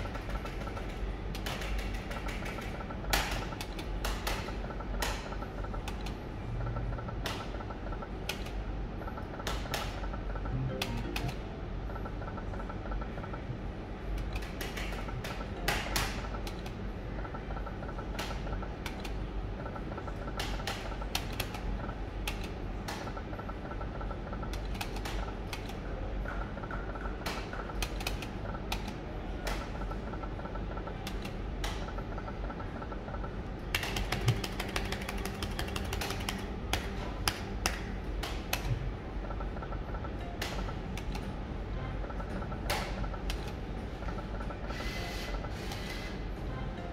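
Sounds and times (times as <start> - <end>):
slot machine reel clicks: 0.0 - 13.5, 26.6 - 46.2
steady low hum: 0.0 - 46.9.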